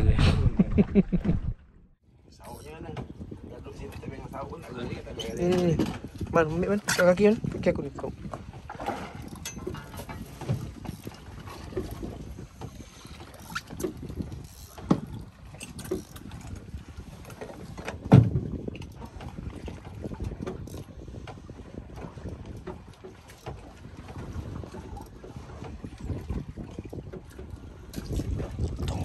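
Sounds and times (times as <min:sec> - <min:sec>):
heavy thump: 0:00.0 - 0:01.6
water washing against boat hull: 0:02.4 - 0:29.0
knocks on boat: 0:14.8 - 0:15.2, 0:17.6 - 0:20.6.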